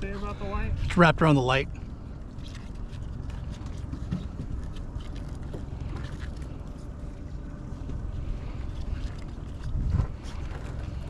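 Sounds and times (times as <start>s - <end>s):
boat low rumble: 0.0s - 11.0s
rope being handled: 2.2s - 11.0s.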